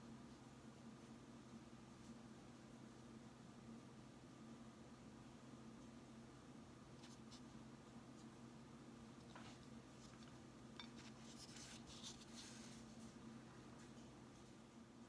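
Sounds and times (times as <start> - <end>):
low steady hum: 0.0 - 15.0
paintbrush stroking gourd: 6.9 - 8.4, 9.2 - 13.2.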